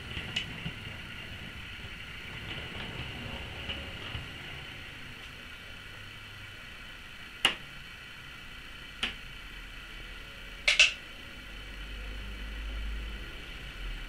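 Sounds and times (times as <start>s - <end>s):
low rumble: 0.0s - 6.1s.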